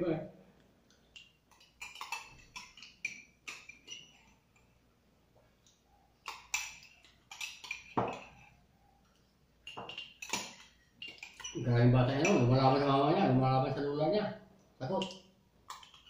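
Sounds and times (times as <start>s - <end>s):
metal spoon clinking on ceramic mug: 1.2s - 4.4s, 6.2s - 8.6s, 9.6s - 11.6s, 12.2s - 12.5s, 15.0s - 16.0s.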